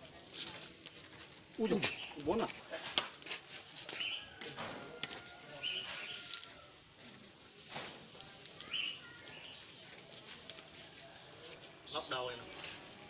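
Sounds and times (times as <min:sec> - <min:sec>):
burning straw crackling: 0:00.0 - 0:13.0
birds chirping: 0:01.6 - 0:02.5, 0:08.6 - 0:10.6, 0:11.7 - 0:13.0.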